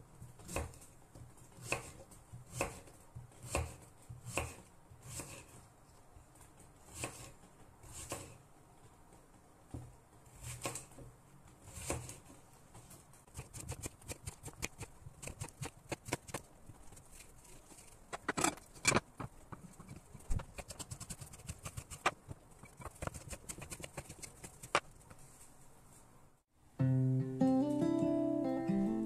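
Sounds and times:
knife chopping on wooden board: 0:01.5 - 0:05.5.

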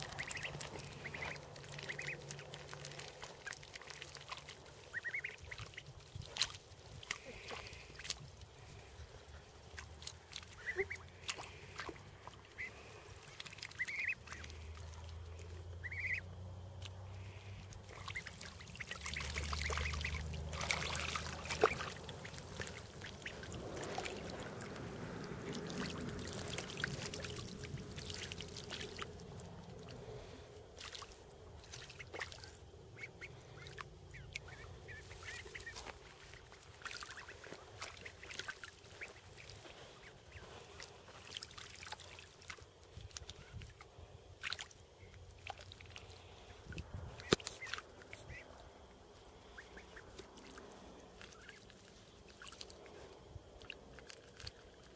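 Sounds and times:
ducklings high calls: 0:00.0 - 0:42.1, 0:45.9 - 0:48.7, 0:49.3 - 0:52.8
ducks splashing in water: 0:00.0 - 0:54.9.

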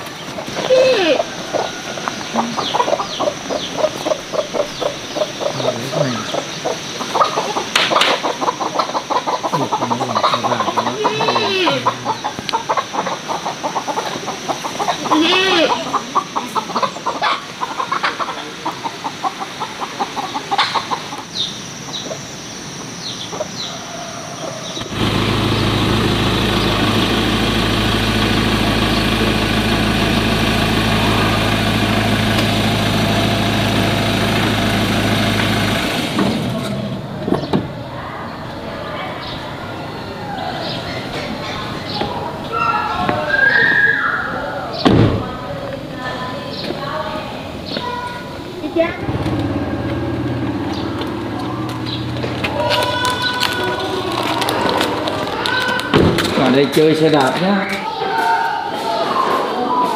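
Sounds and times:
chickens clucking: 0:00.0 - 0:44.4, 0:45.3 - 0:59.9
drawn-out chicken calls: 0:00.0 - 0:44.8, 0:45.9 - 0:55.9
engine idling: 0:24.8 - 0:37.5, 0:48.5 - 0:55.9.

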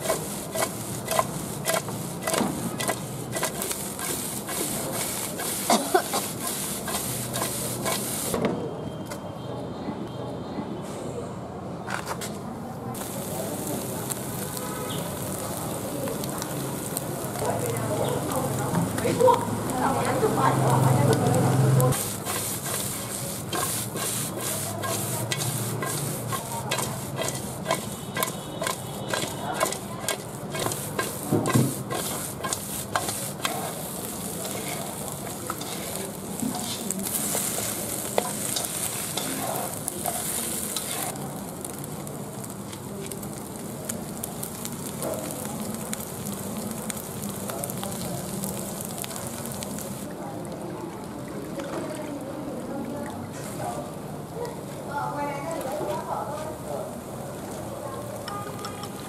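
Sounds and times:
food tossed in metal wok: 0:00.0 - 0:08.4, 0:20.6 - 0:49.7
wet mixture hissing and rustling: 0:00.0 - 0:08.4, 0:12.9 - 0:50.3.

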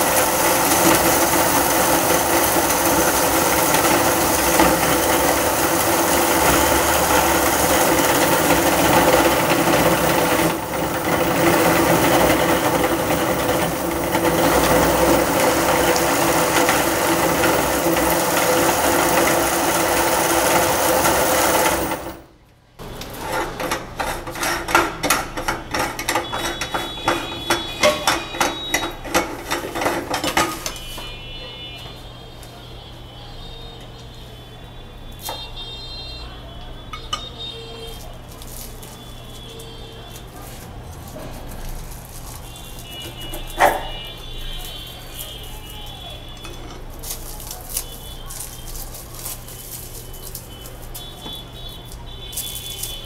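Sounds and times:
meat grinder motor humming: 0:00.0 - 0:22.2, 0:25.6 - 0:30.2
metal parts clicking and clinking: 0:00.0 - 0:22.2, 0:22.9 - 0:31.1, 0:36.9 - 0:53.0.

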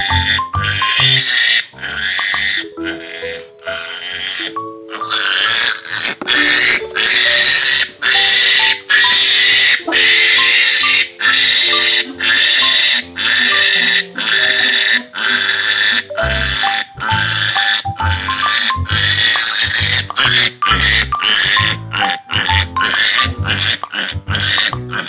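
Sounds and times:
piglet squealing: 0:00.0 - 0:25.0.

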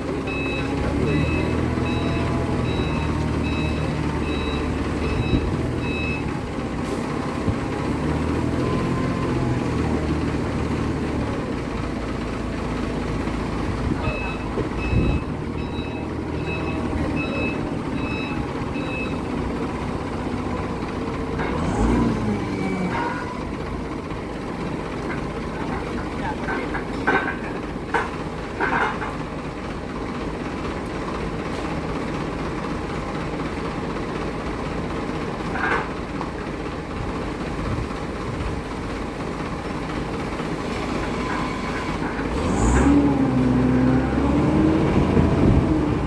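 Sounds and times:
forklift engine running: 0:00.0 - 0:46.0
reversing alarm beeping: 0:00.2 - 0:06.4, 0:14.0 - 0:19.4.

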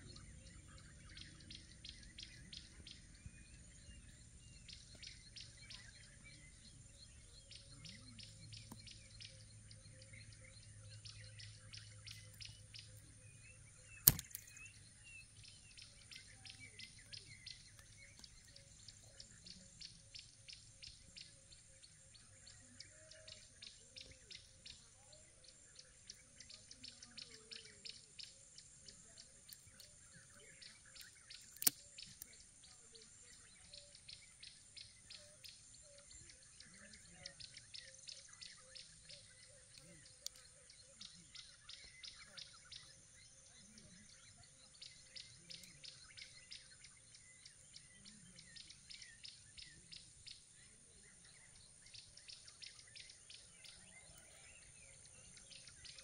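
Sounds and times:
birds chirping: 0:00.0 - 0:56.0
sharp clicks: 0:14.0 - 0:14.7, 0:31.0 - 0:32.3.

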